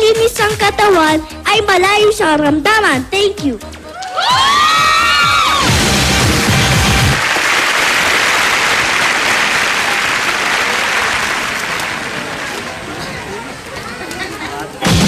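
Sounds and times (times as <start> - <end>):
audience applauding: 4.0 - 13.6.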